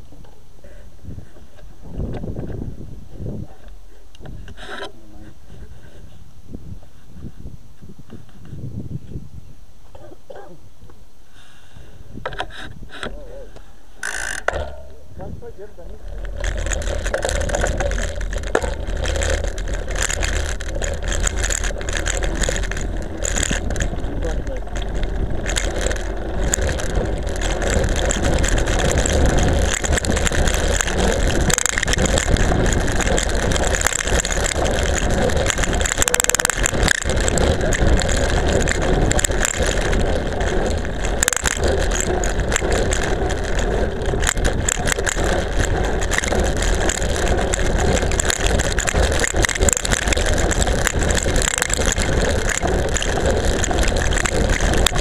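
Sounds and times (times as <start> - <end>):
tyre noise on rough asphalt: 0.0 - 55.0
camera rattling: 14.0 - 55.0.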